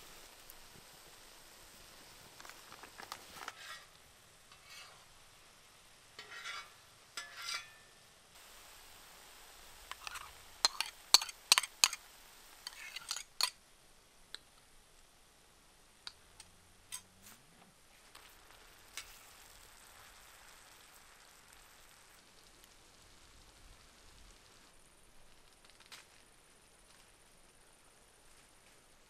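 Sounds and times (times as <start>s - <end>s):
faint sizzling in a pan: 0.0s - 29.0s
stirring and scraping: 2.4s - 5.1s, 6.2s - 7.8s, 9.9s - 12.0s, 12.6s - 13.6s
utensils clinking against pan: 6.2s - 7.9s, 9.9s - 12.0s, 12.6s - 13.6s.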